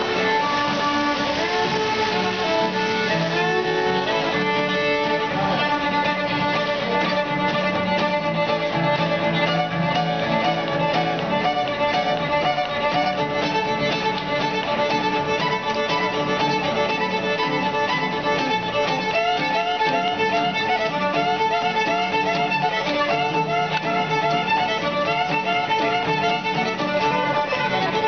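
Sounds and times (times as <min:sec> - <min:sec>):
acoustic guitar strumming: 0:00.0 - 0:28.0
fiddle melody with slides: 0:00.0 - 0:28.0.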